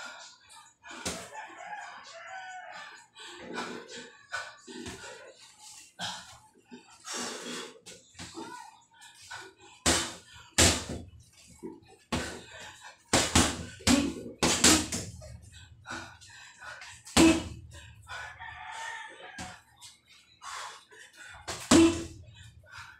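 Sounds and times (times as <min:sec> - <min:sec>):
boxing gloves punching heavy bag: 0:09.9 - 0:11.1, 0:13.1 - 0:15.2, 0:17.1 - 0:17.7, 0:21.5 - 0:22.2.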